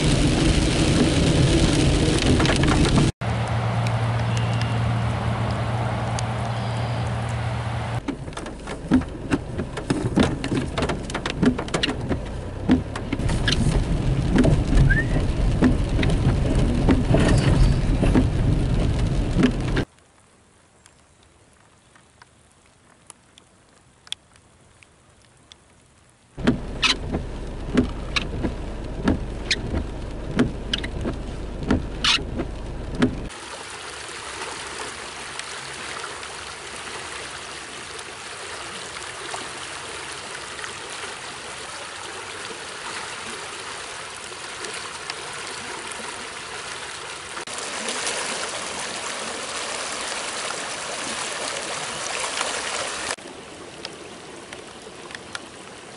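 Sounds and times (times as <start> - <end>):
raindrops tapping on car: 0.0 - 5.6, 8.0 - 19.9, 26.4 - 33.4
car driving on wet road: 0.0 - 20.0, 26.4 - 55.5.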